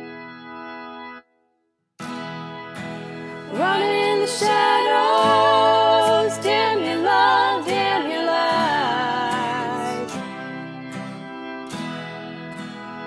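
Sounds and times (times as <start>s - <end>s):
acoustic guitar strumming: 2.0s - 13.0s
women singing in harmony: 3.4s - 10.2s.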